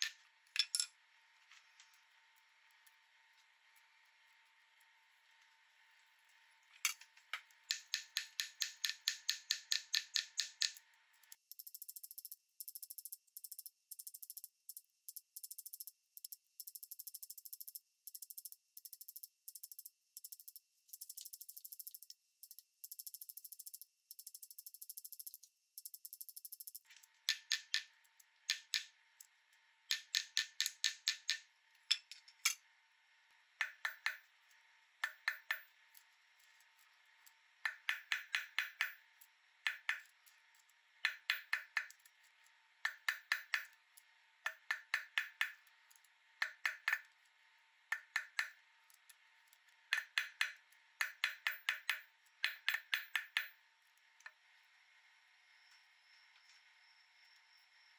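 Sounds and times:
small hammer tapping metal: 0:00.0 - 0:00.9, 0:06.8 - 0:28.9, 0:29.9 - 0:32.6, 0:33.6 - 0:34.3, 0:35.0 - 0:36.6, 0:37.2 - 0:39.0, 0:39.6 - 0:42.1, 0:42.8 - 0:43.8, 0:44.4 - 0:47.2, 0:47.9 - 0:49.1, 0:49.9 - 0:53.6.

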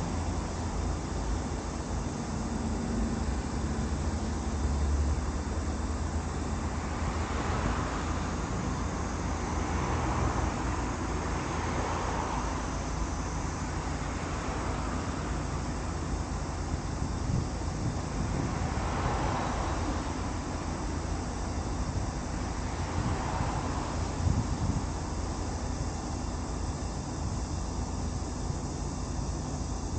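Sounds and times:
road traffic: 0:00.0 - 0:29.9
wind rumble on microphone: 0:17.0 - 0:19.5, 0:22.8 - 0:25.1.

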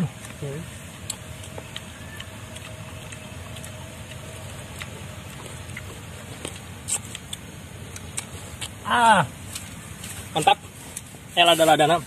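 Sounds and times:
faint steady hum: 0:00.0 - 0:12.0
low outdoor rumble: 0:00.0 - 0:12.0.

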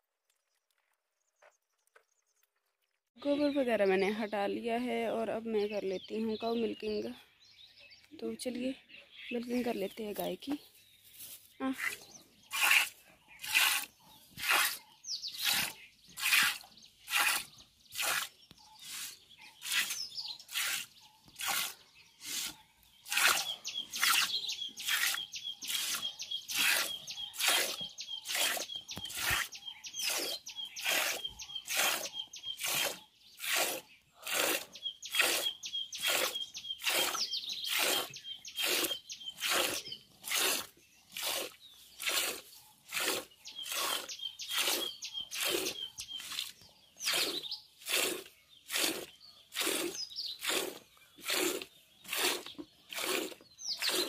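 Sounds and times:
milk squirting into steel bowl: 0:32.6 - 0:44.8, 0:45.4 - 0:54.0.

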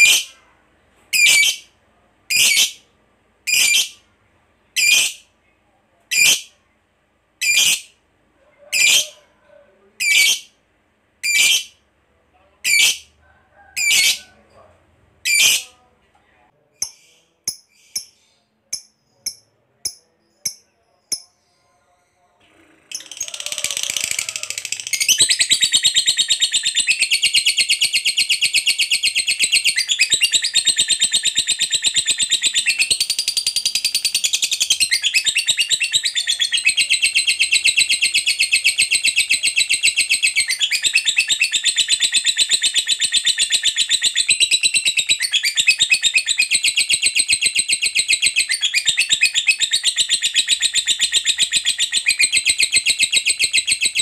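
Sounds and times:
rapid high-pitched bird chatter: 0:01.2 - 0:01.7, 0:02.3 - 0:02.8, 0:03.5 - 0:04.0, 0:04.8 - 0:05.2, 0:07.4 - 0:07.9, 0:10.0 - 0:10.6, 0:11.2 - 0:11.8, 0:12.6 - 0:13.2, 0:13.8 - 0:14.3, 0:15.3 - 0:15.7, 0:22.9 - 0:54.0
bird chirping: 0:07.4 - 0:09.3, 0:11.2 - 0:11.8, 0:16.8 - 0:54.0.

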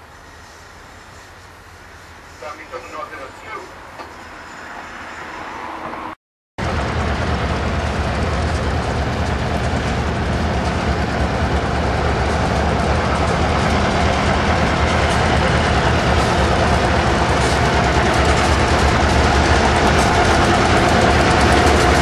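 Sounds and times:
rail noise: 0:00.0 - 0:22.0
locomotive engine rumble: 0:06.6 - 0:22.0.

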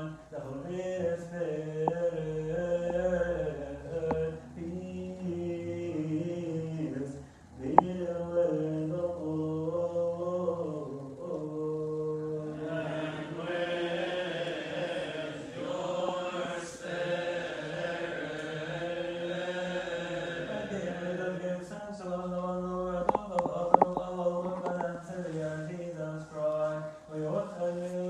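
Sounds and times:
voices chanting long notes: 0:12.0 - 0:21.4.

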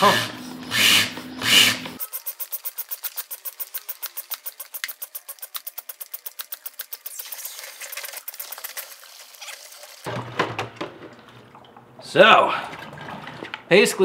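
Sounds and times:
rapid pump ticking: 0:00.8 - 0:08.8.

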